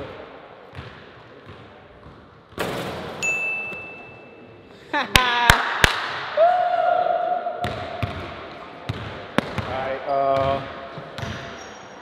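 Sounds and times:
bright ding tone: 3.2s - 4.4s
man laughing and whooping: 4.8s - 5.7s
hand claps: 5.2s - 6.2s.

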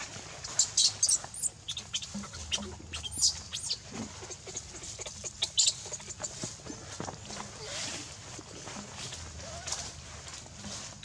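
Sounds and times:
baby monkey squeaking: 0.7s - 3.8s, 5.0s - 6.4s.

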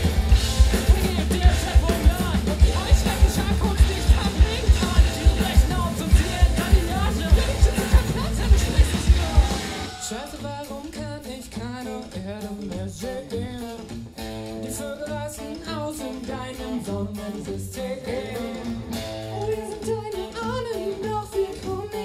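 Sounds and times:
pulsing bass: 0.0s - 9.9s
live rock band playing: 0.0s - 22.0s
man singing: 0.0s - 22.0s.

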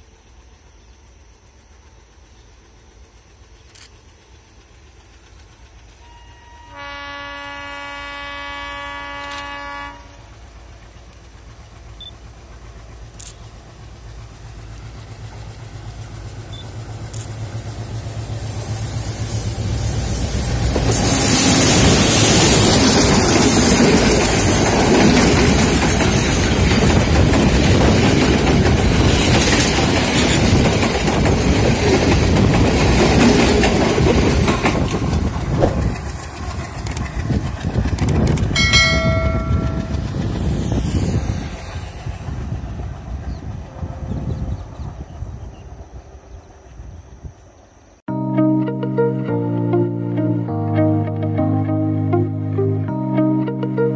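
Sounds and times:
train carriages rolling on rails: 0.0s - 46.9s
locomotive horn chord: 6.0s - 10.4s, 20.9s - 24.6s, 48.1s - 53.9s.

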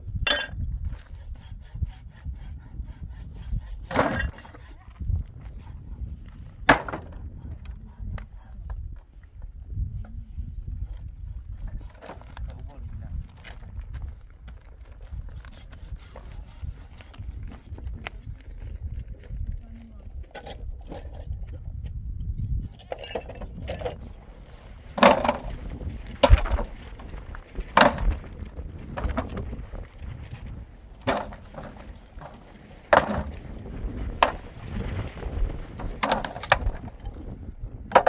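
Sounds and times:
axe chopping wood: 6.7s - 7.2s, 31.0s - 33.3s.

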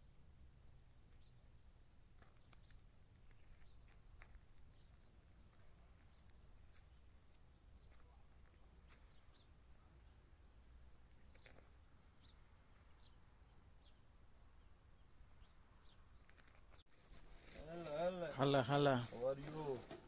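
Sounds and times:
small birds chirping: 0.4s - 20.0s.

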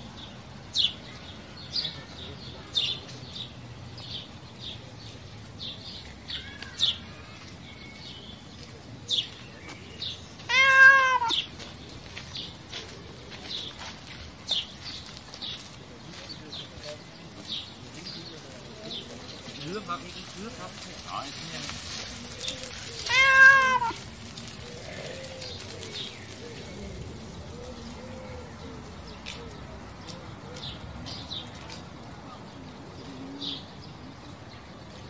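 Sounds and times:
cat meowing: 10.5s - 11.5s, 23.0s - 24.0s.

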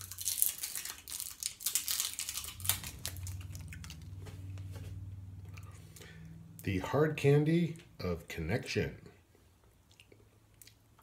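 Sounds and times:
candy wrapper crinkling and tearing: 0.0s - 4.0s
low steady hum: 0.0s - 11.0s.

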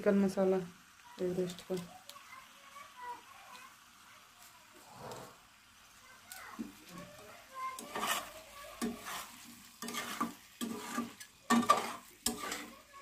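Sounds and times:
curry sizzling: 0.0s - 13.0s
metal spatula scraping pan: 7.6s - 13.0s.

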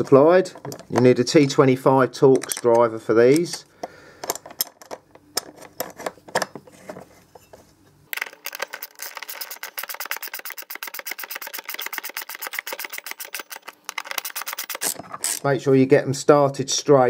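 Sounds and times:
fast even clicking: 8.2s - 15.0s
driver clicking on metal bolts: 8.2s - 15.4s.

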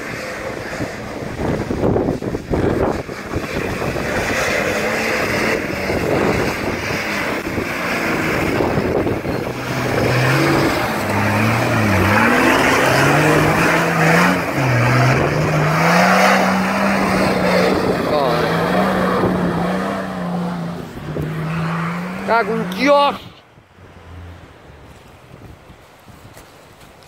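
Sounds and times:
wind buffeting microphone: 0.0s - 22.2s, 23.0s - 27.0s
engine revving hard: 0.0s - 23.2s
spinning tyres and spraying mud: 0.0s - 23.2s.

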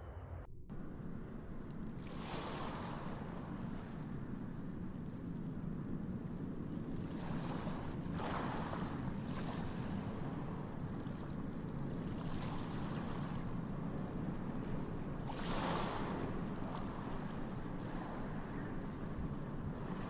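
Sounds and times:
wind on microphone: 0.7s - 20.0s.

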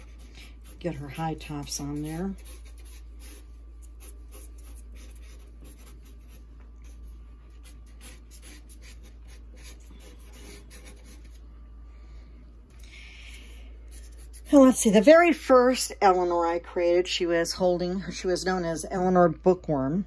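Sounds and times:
marker scratching on paper: 0.0s - 11.4s, 13.4s - 15.4s
steady low hum: 0.0s - 20.0s.

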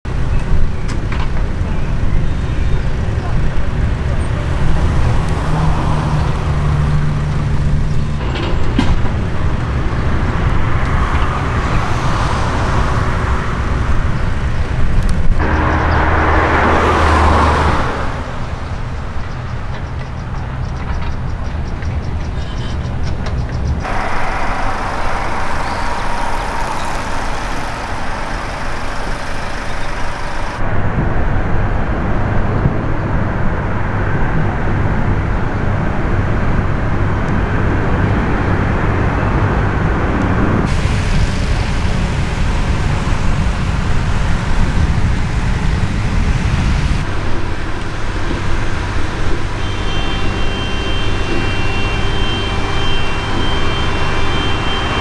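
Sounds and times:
jet engine noise: 0.1s - 21.4s, 23.2s - 55.0s
high whine: 2.2s - 19.8s, 23.8s - 33.5s, 38.6s - 55.0s.

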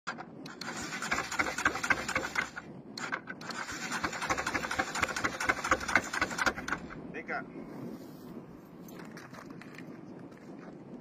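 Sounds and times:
motorcycle engine clattering: 0.1s - 7.0s.

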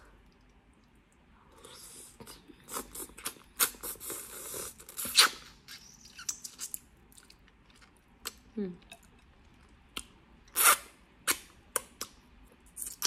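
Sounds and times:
sucking and slurping: 0.2s - 7.4s
wet lip smacks and chewing: 4.9s - 13.0s.

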